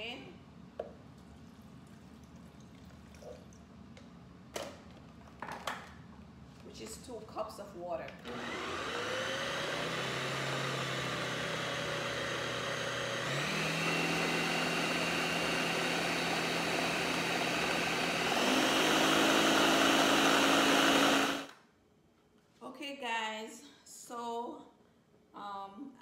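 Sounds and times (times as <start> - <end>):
blender motor running: 8.2 - 21.6.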